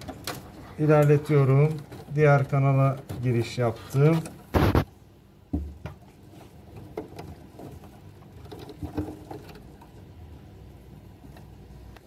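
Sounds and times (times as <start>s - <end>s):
wire clicking and rustling in duct: 0.0s - 10.3s.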